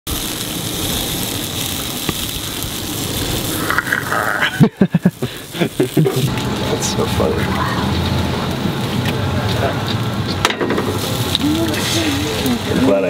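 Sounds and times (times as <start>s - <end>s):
steady hiss: 0.1s - 13.0s
choppy laughter: 4.3s - 6.3s.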